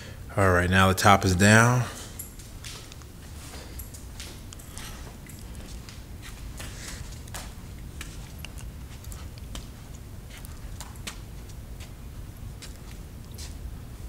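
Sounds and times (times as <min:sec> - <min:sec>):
steady low rumble: 0:00.0 - 0:14.0
footsteps on concrete: 0:02.6 - 0:12.0.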